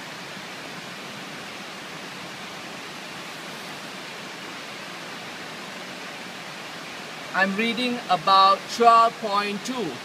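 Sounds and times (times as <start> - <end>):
steady background hiss: 0.0 - 10.0.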